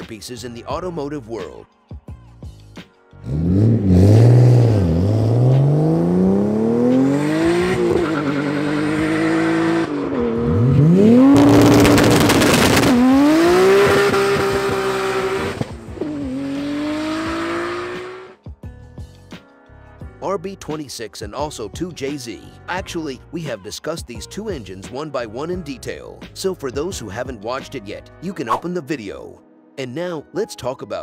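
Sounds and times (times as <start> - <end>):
sports car engines accelerating: 3.2 - 18.4
engine crackle: 10.4 - 17.0.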